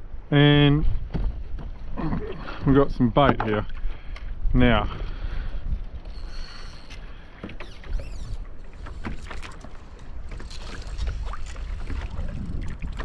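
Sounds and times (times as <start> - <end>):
water around a kayak: 0.0 - 13.0
wind: 0.0 - 13.0
fishing gear clicks and knocks: 5.8 - 13.0.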